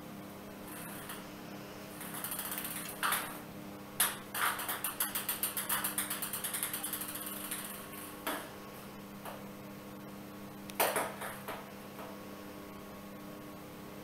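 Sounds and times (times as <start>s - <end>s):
toy ball clattering on tile floor: 2.0s - 3.4s, 4.0s - 8.4s.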